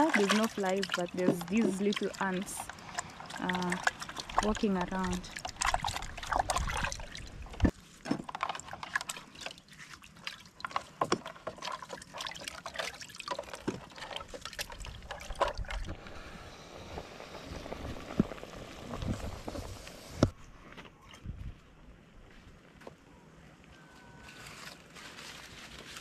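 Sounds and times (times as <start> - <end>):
water splashing in a basin: 0.0 - 19.7.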